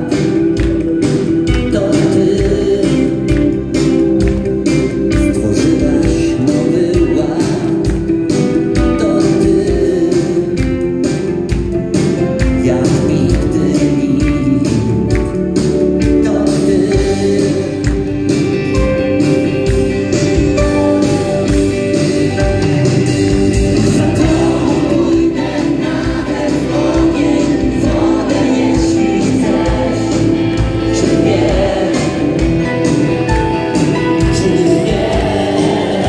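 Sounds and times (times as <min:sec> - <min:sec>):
person singing: 0:00.0 - 0:11.4, 0:12.2 - 0:19.0, 0:20.0 - 0:36.0
bass: 0:00.0 - 0:36.0
electric guitars: 0:00.0 - 0:36.0
keyboards: 0:00.0 - 0:36.0
steady drum beat: 0:00.0 - 0:36.0
backing choir: 0:20.8 - 0:36.0.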